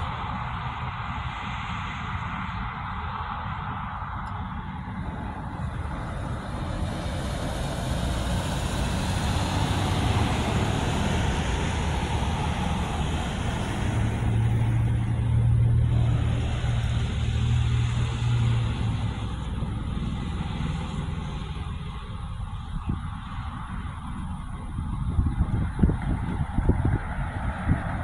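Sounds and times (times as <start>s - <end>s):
cars driving past: 0.0s - 28.0s
deep steady engine hum: 0.0s - 28.0s.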